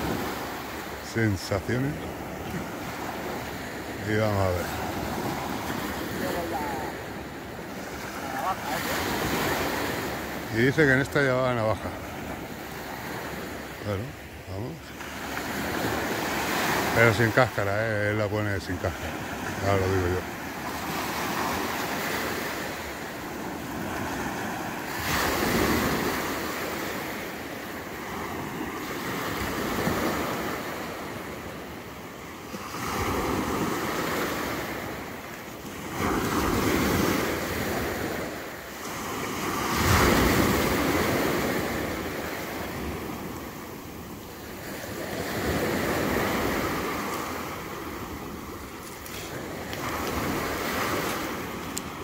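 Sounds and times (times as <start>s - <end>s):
waves breaking on beach: 0.0s - 52.0s.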